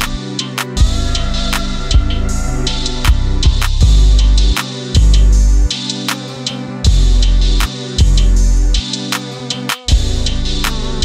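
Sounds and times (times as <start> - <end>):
background music with drum beat: 0.0 - 11.0
kick drum: 0.8 - 1.1, 3.1 - 4.2, 5.0 - 5.3.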